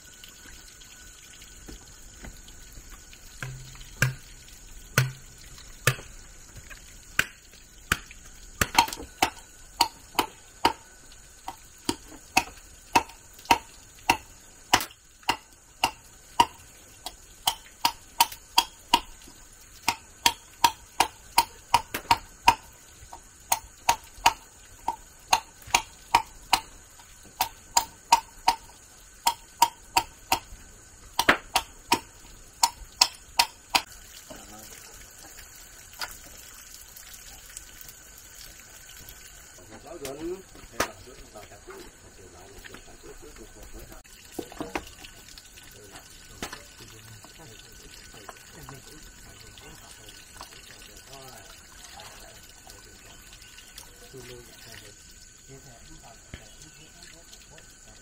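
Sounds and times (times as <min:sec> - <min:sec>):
tool striking with ring: 0:03.4 - 0:04.2, 0:05.0 - 0:05.3.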